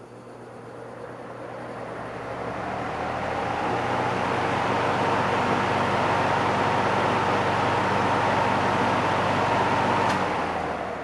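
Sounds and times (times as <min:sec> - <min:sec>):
box fan rushing air: 0:00.0 - 0:11.0
faint fan whine: 0:00.0 - 0:11.0.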